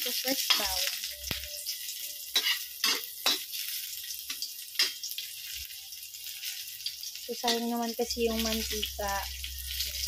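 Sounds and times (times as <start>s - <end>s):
garlic sizzling in oil: 0.0s - 10.0s
metal spatula scraping wok: 2.3s - 5.6s.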